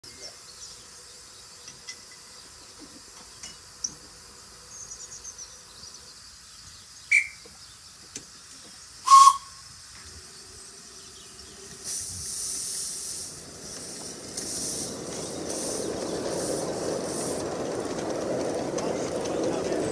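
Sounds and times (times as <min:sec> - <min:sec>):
steam locomotive whistle: 0:07.1 - 0:07.4, 0:09.0 - 0:09.6
loud steam hiss: 0:08.2 - 0:19.9.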